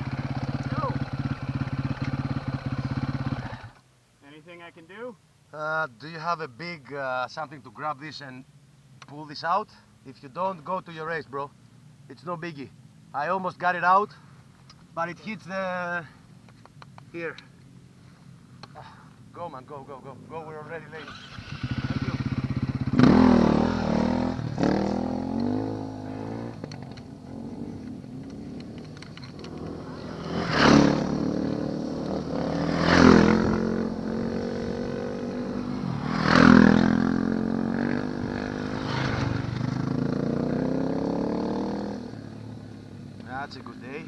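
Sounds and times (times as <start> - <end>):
motorbike engine idling and revving: 0.0 - 3.8, 21.1 - 44.0.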